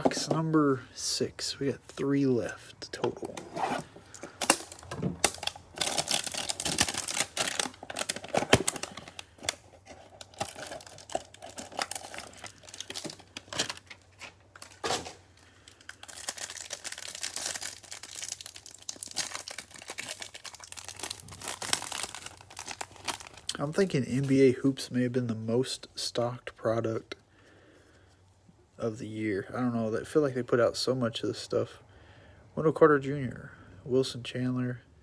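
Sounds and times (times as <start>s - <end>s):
plastic wrapper crinkling: 4.1s - 24.4s.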